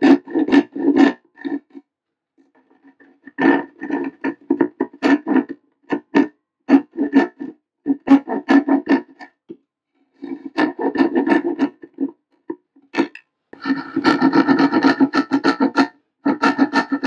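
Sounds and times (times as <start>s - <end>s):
handsaw cutting panel: 13.0s - 17.0s.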